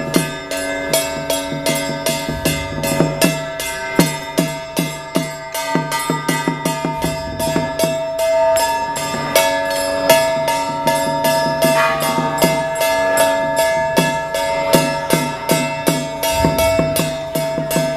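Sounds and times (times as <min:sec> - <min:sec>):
rapid metallic percussion strikes: 0:00.0 - 0:17.9
ringing bell-like tones: 0:00.0 - 0:17.9.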